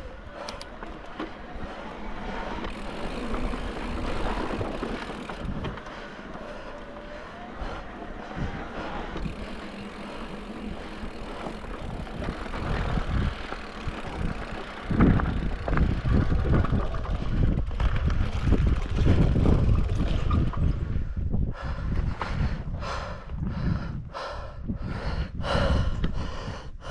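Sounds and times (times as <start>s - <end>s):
bike tyres rolling over dirt: 0.0s - 21.2s
wind rumbling on microphone: 0.0s - 26.9s.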